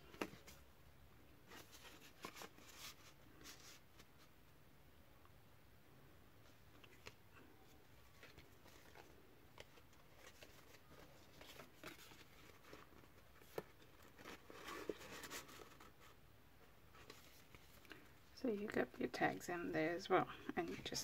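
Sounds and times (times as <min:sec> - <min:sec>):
paper rustling: 0:01.5 - 0:04.3, 0:07.8 - 0:16.2.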